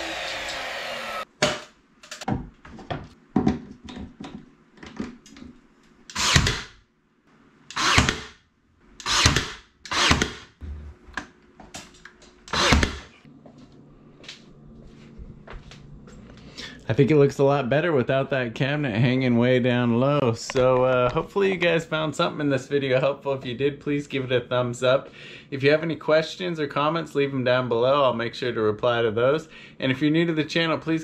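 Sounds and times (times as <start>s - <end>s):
nail gun shots: 6.1s - 6.8s, 7.7s - 8.4s, 9.0s - 10.5s.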